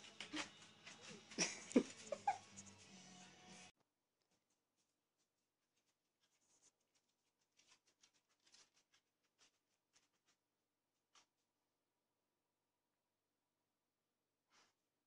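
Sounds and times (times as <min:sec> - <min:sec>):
faint ticks and rustles: 0:05.8 - 0:10.4.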